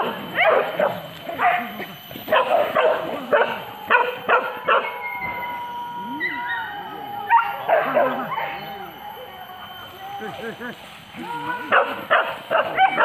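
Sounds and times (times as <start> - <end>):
dogs barking: 0.0 - 5.1, 7.3 - 8.6, 11.6 - 13.0
dogs whining: 0.0 - 9.0.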